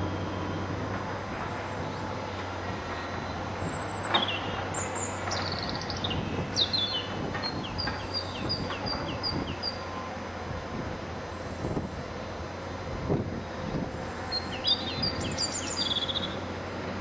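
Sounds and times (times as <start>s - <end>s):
songbird singing: 0.0s - 10.2s, 13.9s - 16.5s
distant excavator engine hum: 0.0s - 17.0s.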